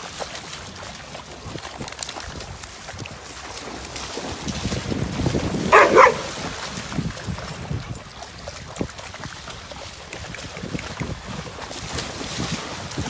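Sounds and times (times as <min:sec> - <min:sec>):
dogs splashing in water: 0:00.0 - 0:13.0
dog barking: 0:05.7 - 0:06.3.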